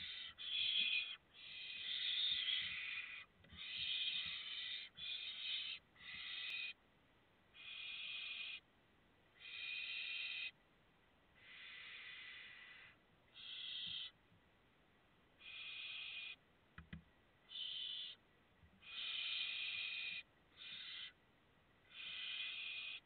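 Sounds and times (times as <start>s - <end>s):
owl chicks hissing calls: 0.0s - 6.8s, 7.6s - 8.6s, 9.4s - 10.6s, 11.4s - 14.2s, 15.4s - 16.4s, 17.5s - 18.2s, 18.8s - 21.2s, 21.8s - 23.0s.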